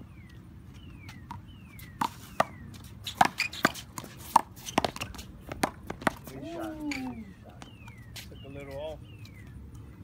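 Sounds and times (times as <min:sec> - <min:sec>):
ball bouncing on court: 0:03.2 - 0:06.3.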